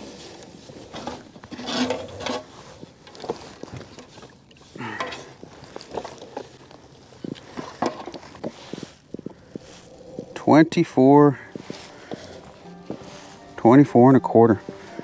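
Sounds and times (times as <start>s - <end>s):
knocks scrapes and rustles on kayak: 0.0s - 10.3s.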